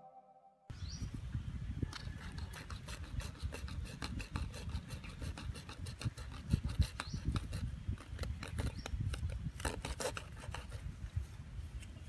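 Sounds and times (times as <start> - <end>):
hacksaw sawing plastic pipe: 2.0 - 10.8.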